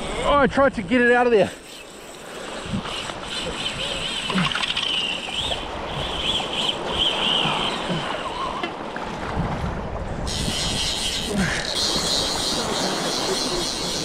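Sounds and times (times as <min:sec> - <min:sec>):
moving sea water: 0:00.0 - 0:14.0
wind on microphone: 0:02.6 - 0:04.5, 0:09.1 - 0:14.0.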